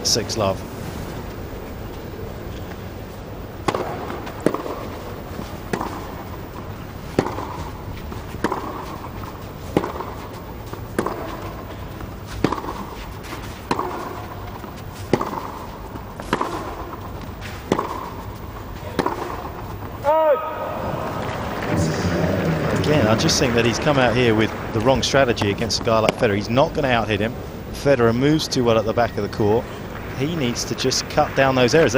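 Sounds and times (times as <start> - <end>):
quiet crowd hum: 0.0 - 31.9
tennis racket hitting ball: 3.6 - 27.0.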